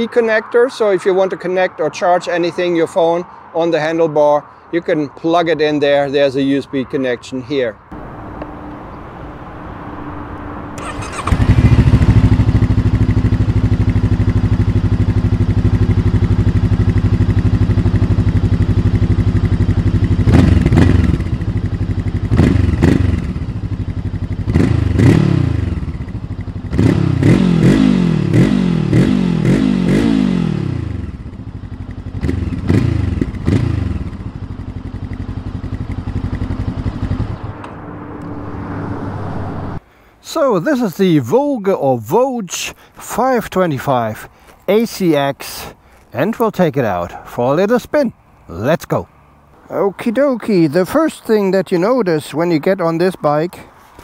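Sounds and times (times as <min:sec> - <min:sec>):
motorcycle engine revving: 0:07.9 - 0:39.8
motorcycle engine starting: 0:08.0 - 0:39.8.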